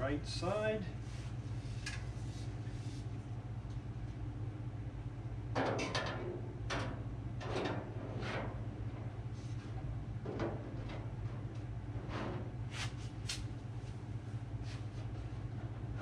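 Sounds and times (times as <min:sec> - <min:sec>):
steady low hum: 0:00.0 - 0:16.0
metal scraping and knocking on metal: 0:05.6 - 0:12.6.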